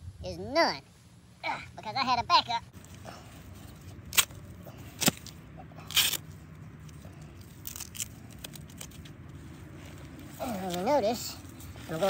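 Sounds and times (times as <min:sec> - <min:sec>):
strap scraping and clicking: 0:03.6 - 0:12.0
strap tearing rip: 0:03.7 - 0:09.1.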